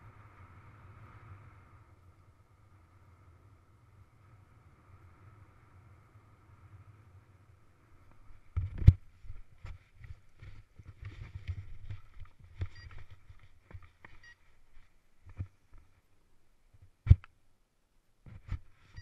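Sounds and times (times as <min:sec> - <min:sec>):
knocks and rustling of running feet: 0:08.5 - 0:15.9.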